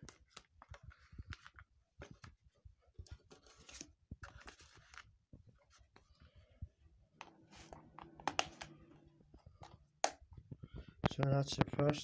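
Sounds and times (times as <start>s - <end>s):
paper insert rustling: 0.1s - 6.2s, 7.2s - 8.8s.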